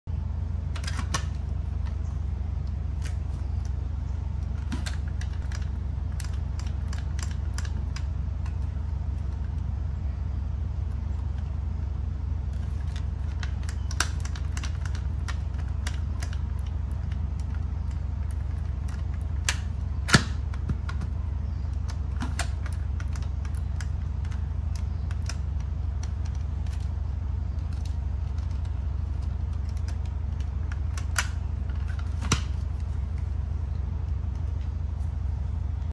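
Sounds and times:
steady low hum: 0.0s - 35.9s
plastic clicks and rattles: 4.4s - 8.7s, 12.6s - 26.9s.

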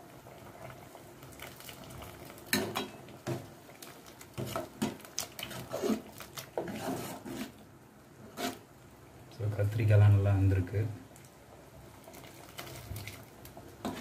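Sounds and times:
ladle stirring thick stew: 0.6s - 7.6s, 12.0s - 14.0s.

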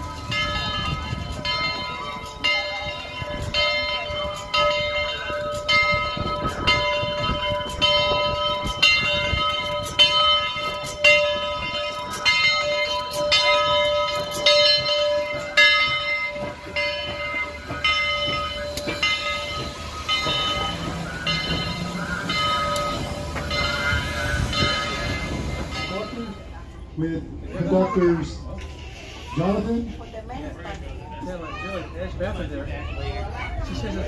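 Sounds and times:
locomotive bell ringing: 0.0s - 27.0s
low rumble of train: 0.0s - 34.0s.

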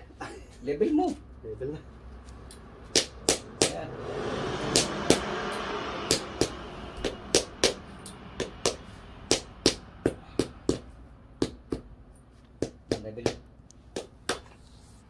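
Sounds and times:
hammer tapping bricks: 12.6s - 14.5s.

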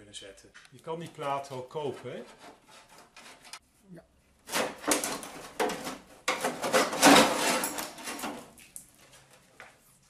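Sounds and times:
metal plate scraping and clattering: 4.5s - 8.5s.

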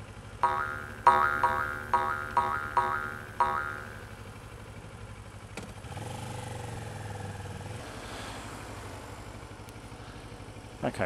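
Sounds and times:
motorcycle engine running: 0.0s - 11.0s
cartoon boing sound effect: 0.4s - 4.1s.

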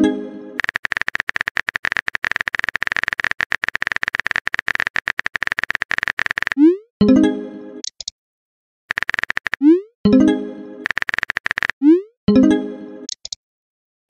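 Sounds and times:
phone keyboard typing clicks: 0.6s - 6.6s, 7.8s - 8.1s, 8.9s - 9.7s, 10.8s - 11.8s, 13.1s - 13.4s.

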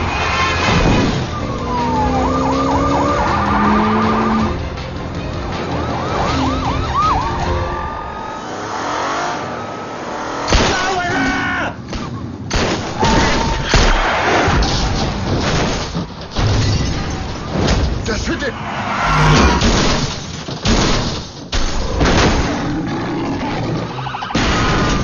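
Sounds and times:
police sirens wailing: 0.0s - 12.4s, 23.4s - 25.0s
car engines: 0.0s - 20.7s, 21.3s - 25.0s
road noise: 0.0s - 20.7s, 21.3s - 25.0s
loud car crashes: 0.1s - 1.4s, 10.4s - 11.3s, 12.0s - 22.7s, 24.2s - 25.0s.

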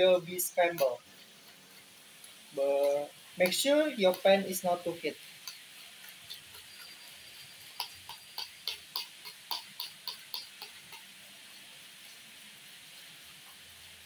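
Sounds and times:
light evenly spaced clicks: 2.2s - 11.1s.

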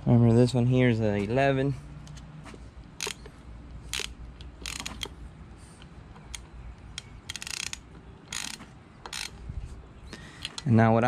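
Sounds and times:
hand ratchet clicking: 3.9s - 5.2s, 6.3s - 9.4s.

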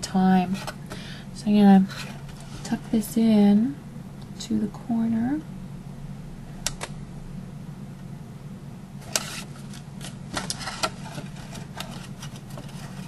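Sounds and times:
steady low hum: 0.0s - 13.0s
card clicking and scraping: 9.0s - 13.0s.

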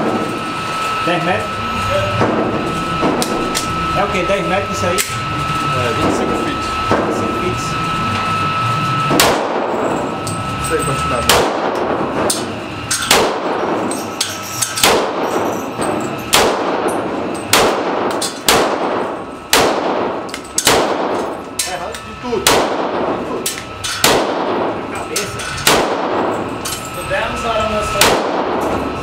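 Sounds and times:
handgun shots echoing indoors: 9.1s - 9.8s, 11.3s - 14.0s, 14.8s - 21.4s, 22.4s - 24.8s, 25.6s - 26.4s, 28.0s - 28.8s.

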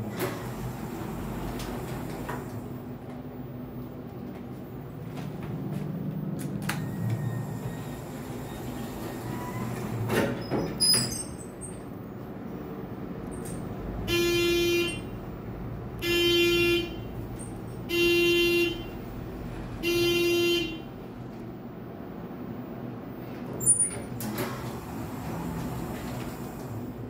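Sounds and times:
elevator buzzer: 6.7s - 10.0s, 13.9s - 15.4s, 16.0s - 21.2s.

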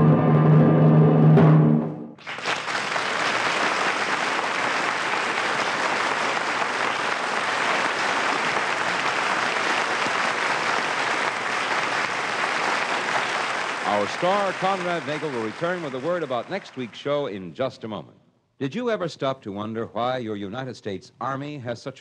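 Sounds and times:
audience applauding: 2.2s - 17.2s.

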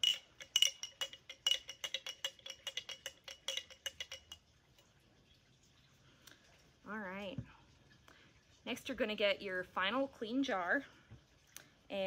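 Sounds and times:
spoon clinking in glass jar: 0.0s - 4.9s.

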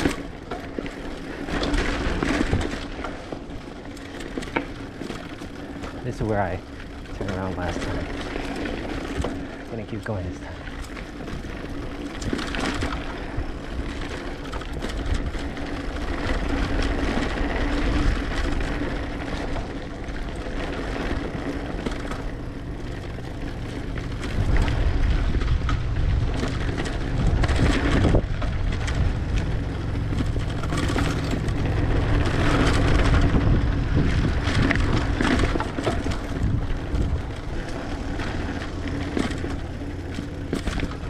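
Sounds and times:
bike rattling over ground: 0.0s - 41.0s
wind blowing on microphone: 24.3s - 29.4s, 31.2s - 37.6s.

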